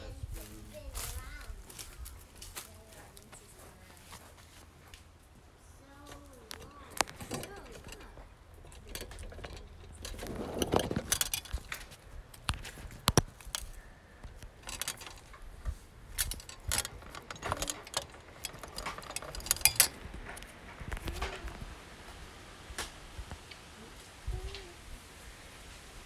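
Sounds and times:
phone handling clicks and rustles: 6.4s - 21.6s.

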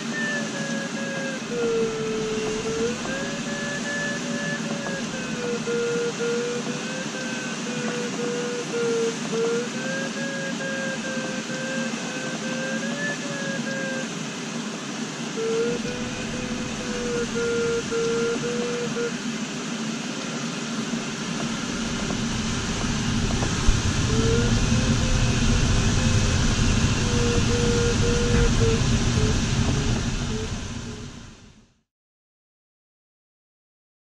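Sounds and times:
airflow rushing over canopy: 0.0s - 31.7s
wind buffeting rumble: 1.0s - 5.8s, 15.7s - 18.7s, 20.7s - 31.6s.

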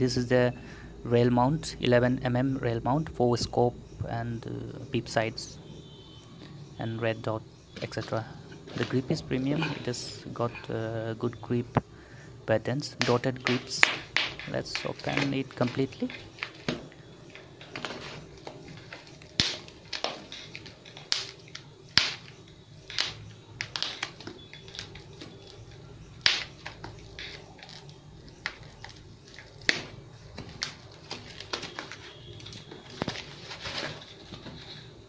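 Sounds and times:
packing wrap crackling: 13.2s - 34.9s
loud plastic snaps: 19.3s - 25.0s.

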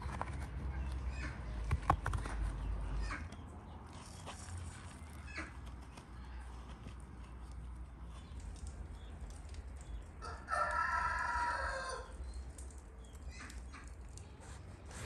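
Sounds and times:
rooster crowing: 10.2s - 12.1s.

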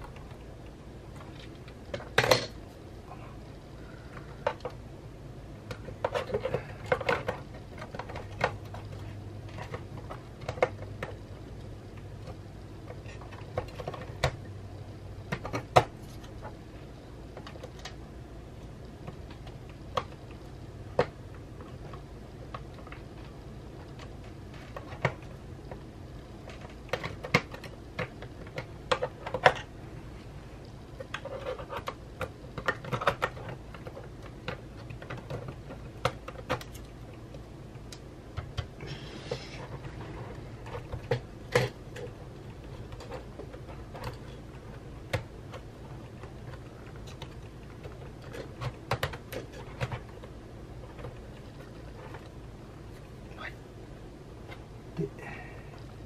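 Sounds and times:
clicks and taps of computer parts: 26.5s - 29.7s, 45.1s - 50.1s.

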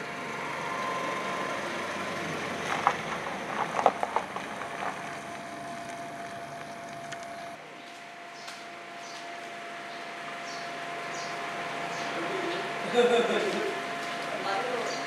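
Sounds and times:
truck driving past: 0.0s - 7.6s
tyres crunching on unpaved drive: 0.0s - 7.6s.

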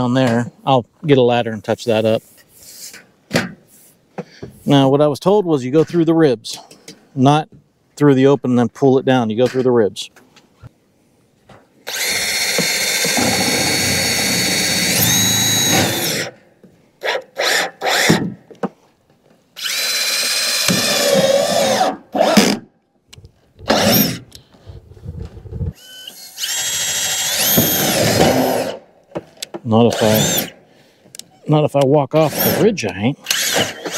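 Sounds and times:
power drill driving screws: 11.9s - 16.4s, 17.0s - 18.2s, 19.6s - 22.6s, 23.7s - 24.2s, 25.8s - 28.8s, 29.9s - 30.6s, 32.2s - 32.6s, 33.2s - 33.9s.

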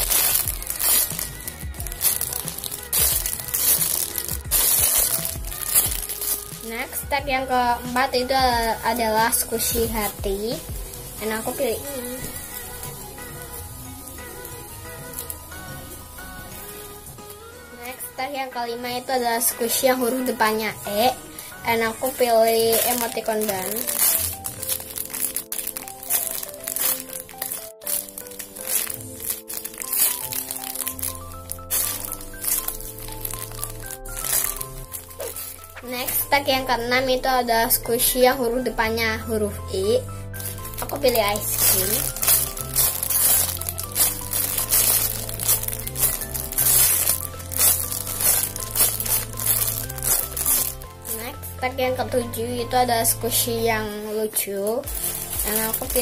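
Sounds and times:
plastic wrapper crinkling: 0.0s - 7.0s, 8.7s - 15.6s, 19.7s - 36.8s, 39.9s - 51.5s, 54.7s - 56.0s
music with beat and bass: 0.0s - 17.5s, 54.9s - 56.0s
background music with held notes: 0.0s - 56.0s.

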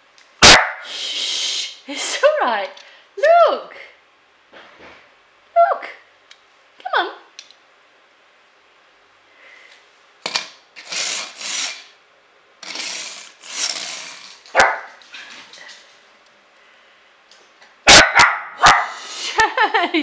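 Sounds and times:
small dog barking: 0.4s - 0.9s, 14.5s - 15.0s, 17.9s - 19.0s.

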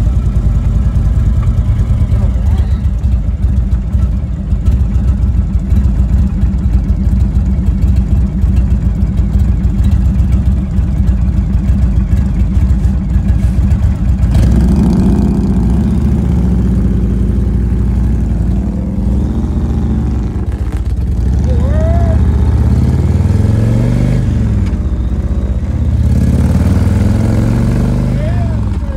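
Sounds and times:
motorcycle engine idling: 0.0s - 23.5s, 24.2s - 26.4s, 28.2s - 28.9s
motorcycles revving and accelerating: 13.8s - 28.9s.

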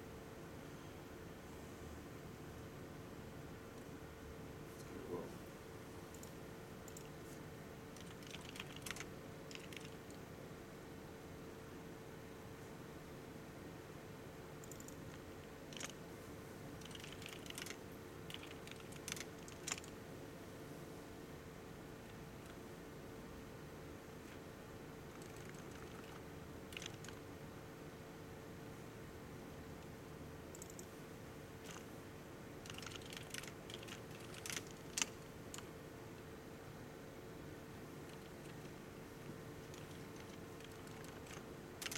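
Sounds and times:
faint steady hum: 0.0s - 41.9s
computer keyboard clicking: 6.9s - 7.1s, 8.0s - 10.2s, 14.6s - 16.0s, 16.8s - 20.0s, 25.1s - 27.2s, 30.5s - 30.9s, 31.6s - 31.8s, 32.6s - 35.7s, 38.1s - 38.7s, 39.6s - 41.9s.

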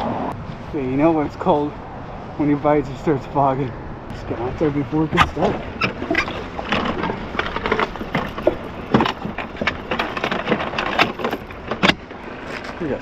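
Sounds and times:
clicks and rustling: 5.1s - 13.0s.

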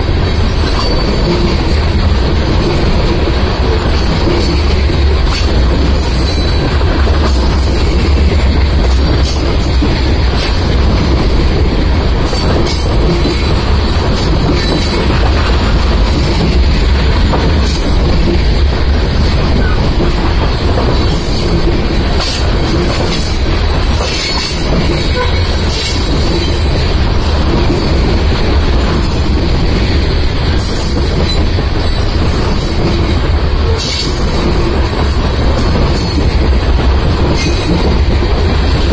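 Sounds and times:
freight train wheels rumbling: 0.0s - 38.9s.

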